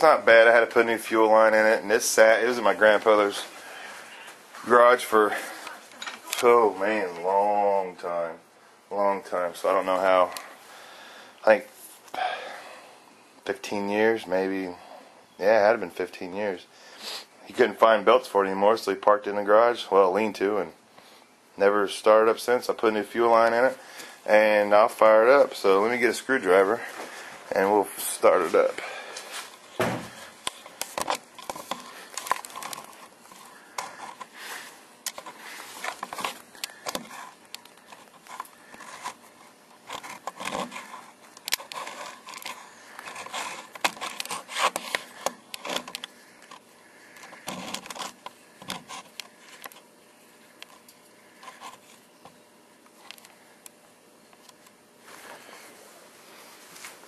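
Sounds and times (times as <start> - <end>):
tools and objects being handled: 5.4 - 6.4, 29.2 - 49.9.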